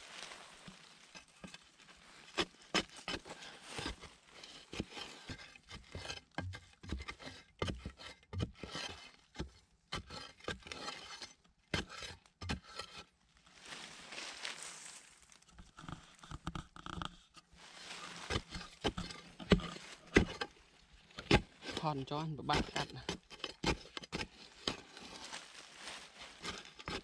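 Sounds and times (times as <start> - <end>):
dry leaves crackling: 0.0 - 1.1, 13.6 - 15.4
digging tool scraping soil: 0.0 - 14.4, 17.5 - 27.0.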